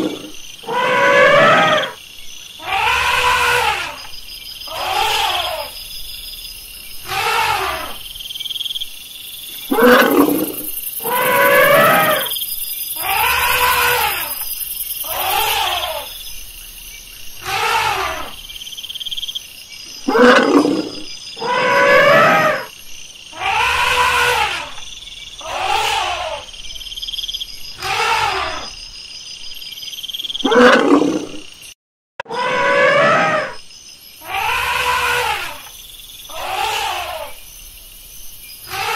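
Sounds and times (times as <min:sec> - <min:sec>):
elephant trumpeting: 0:00.0 - 0:02.0, 0:02.6 - 0:04.0, 0:07.0 - 0:08.0, 0:09.7 - 0:12.3, 0:15.0 - 0:16.1, 0:17.4 - 0:18.4, 0:20.1 - 0:22.7, 0:23.4 - 0:24.7, 0:25.4 - 0:26.5, 0:27.8 - 0:28.7, 0:32.2 - 0:33.6, 0:34.2 - 0:35.7, 0:36.3 - 0:37.4, 0:38.7 - 0:38.9.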